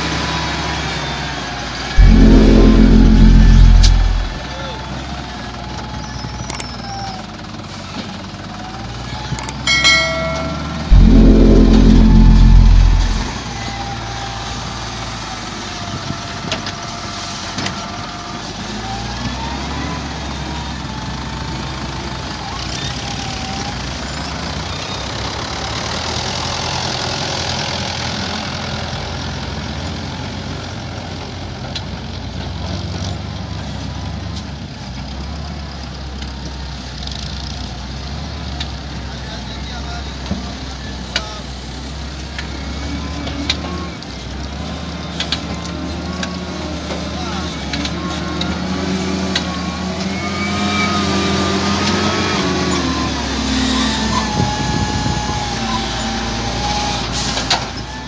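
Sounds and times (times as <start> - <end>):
wavering thin whine: 2.0 - 4.5, 9.7 - 13.5.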